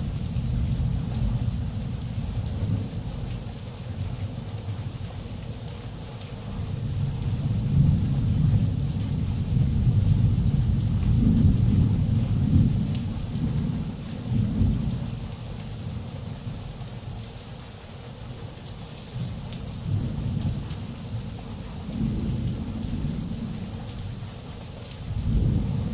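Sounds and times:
steady rain falling: 0.0 - 25.9
rolling thunder: 7.0 - 15.1, 19.9 - 23.8, 25.1 - 25.9.

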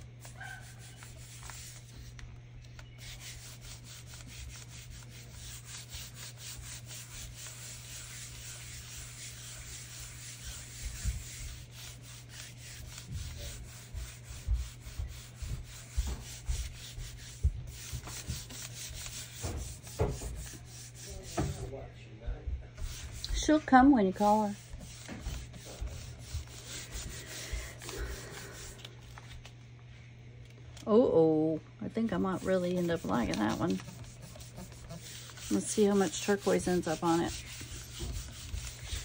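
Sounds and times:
hands rubbing paper: 0.0 - 21.8, 22.8 - 29.6, 32.1 - 39.0.

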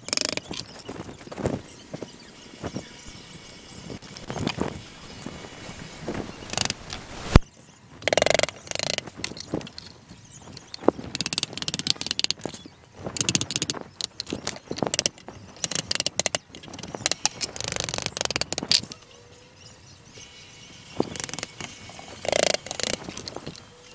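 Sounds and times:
hand tool scraping wood: 20.7 - 23.8.

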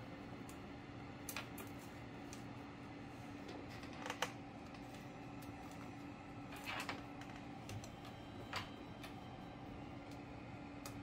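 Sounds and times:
steady low hum: 0.0 - 11.0
faint clicks and taps: 6.8 - 9.2.

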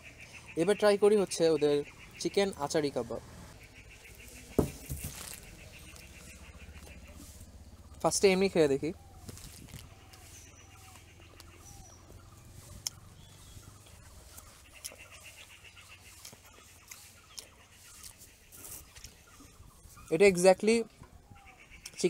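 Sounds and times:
distant birds chirping trills: 0.0 - 22.0.

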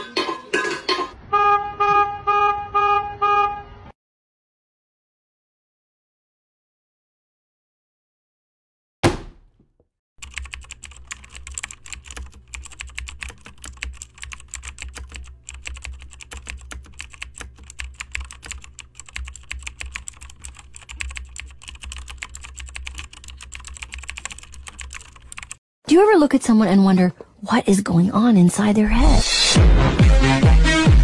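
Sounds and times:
typing on keys: 10.2 - 25.6.

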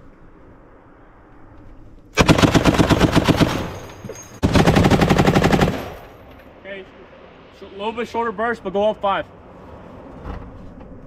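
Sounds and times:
machine gun automatic bursts: 2.2 - 6.1.

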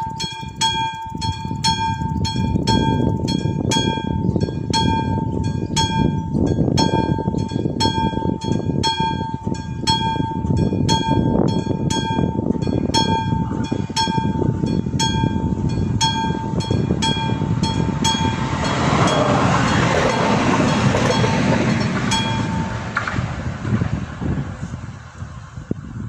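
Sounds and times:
electric warning bell ringing: 0.0 - 23.4
low rumble: 9.7 - 26.0.

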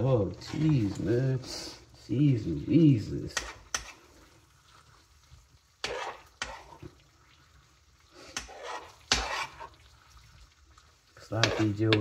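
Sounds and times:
utensil scraping metal pan: 3.3 - 4.1, 5.8 - 6.9, 8.2 - 9.8, 11.2 - 12.0.

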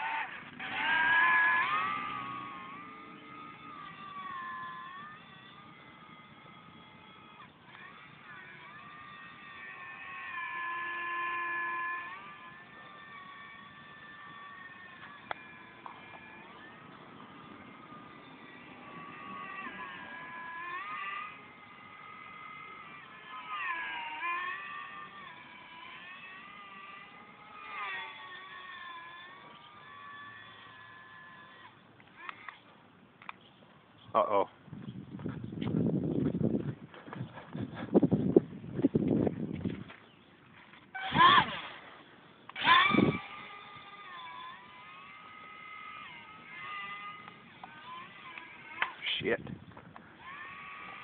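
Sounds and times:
model plane motor whining: 0.0 - 33.4, 40.6 - 51.0.

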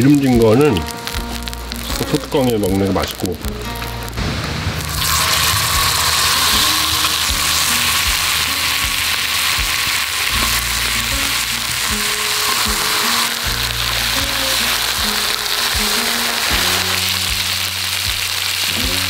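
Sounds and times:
background music: 0.0 - 19.0
pork sizzling on a griddle: 0.0 - 19.0.

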